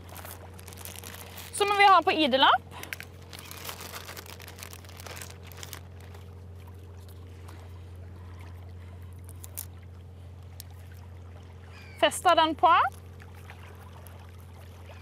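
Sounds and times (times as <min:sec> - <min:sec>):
gloved hands handling plastic and paper: 0:00.0 - 0:02.2, 0:02.8 - 0:06.3.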